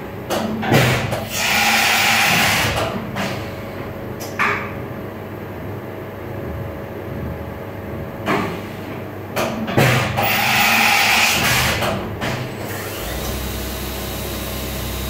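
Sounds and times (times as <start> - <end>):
pneumatic hiss: 10.2 - 14.8
machine hum: 12.0 - 15.0.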